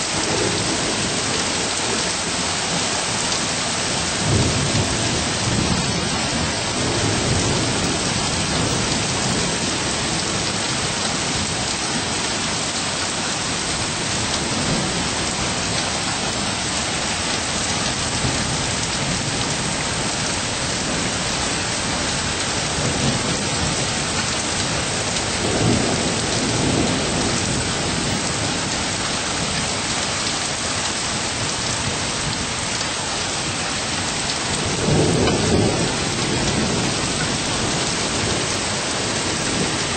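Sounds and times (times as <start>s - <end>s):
steady rain falling: 0.0s - 39.9s
low thunder rolls: 34.5s - 39.9s.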